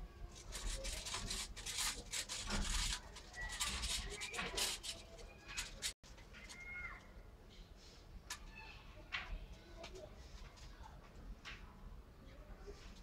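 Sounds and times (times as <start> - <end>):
rustling on bark-chip bedding: 0.4 - 6.0.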